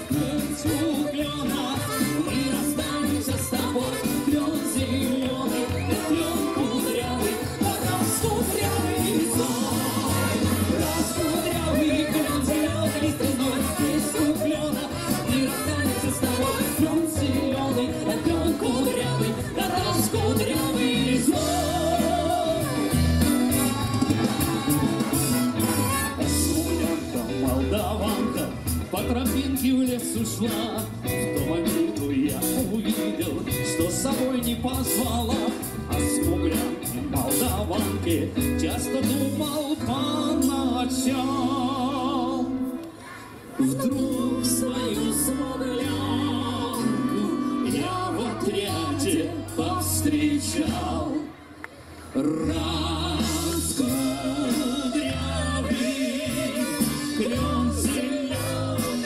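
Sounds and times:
bass line: 0.0s - 42.7s, 43.6s - 51.3s, 52.2s - 59.0s
live band playing amplified music: 0.0s - 59.0s.

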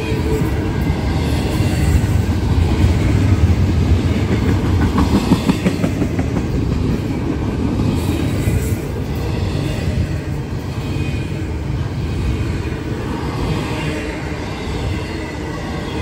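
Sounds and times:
train cars clanking: 0.0s - 12.4s
freight train rumbling: 0.0s - 16.0s.

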